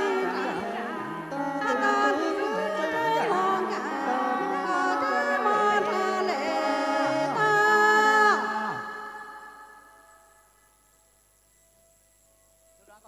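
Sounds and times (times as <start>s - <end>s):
bamboo mouth organs playing chords: 0.0s - 9.8s.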